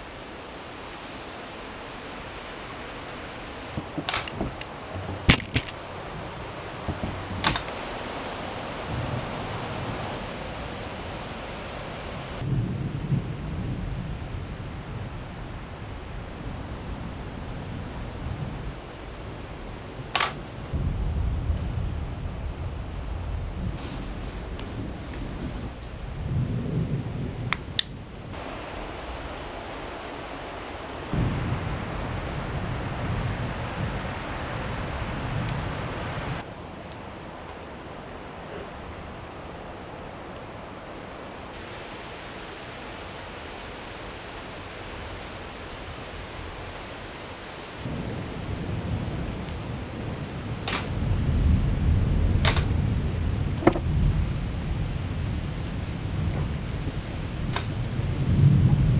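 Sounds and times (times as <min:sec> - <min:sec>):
rain hiss: 0:00.0 - 0:58.9
low thunder rumble: 0:02.8 - 0:41.8, 0:47.8 - 0:58.9
sharp clicks: 0:07.4 - 0:07.8, 0:20.1 - 0:20.4, 0:52.4 - 0:52.7.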